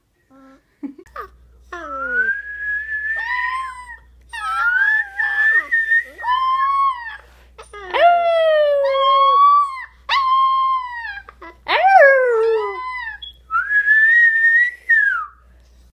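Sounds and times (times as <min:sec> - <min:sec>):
wolf pup howling: 0:07.8 - 0:13.2.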